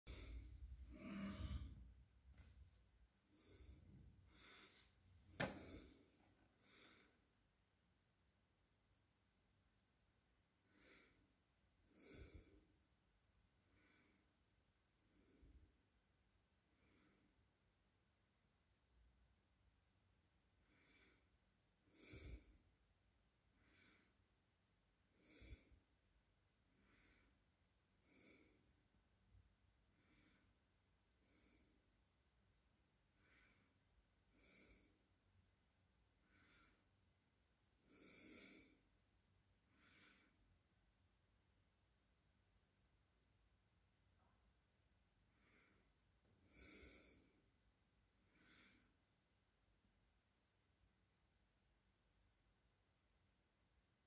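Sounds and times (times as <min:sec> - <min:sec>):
person breathing close: 0:00.1 - 0:07.3, 0:11.9 - 0:12.8, 0:20.6 - 0:22.7, 0:25.1 - 0:25.9, 0:26.7 - 0:28.8, 0:31.2 - 0:31.8, 0:33.2 - 0:35.1, 0:36.2 - 0:37.0, 0:37.8 - 0:38.9, 0:39.6 - 0:40.4, 0:45.2 - 0:47.5, 0:48.2 - 0:49.0.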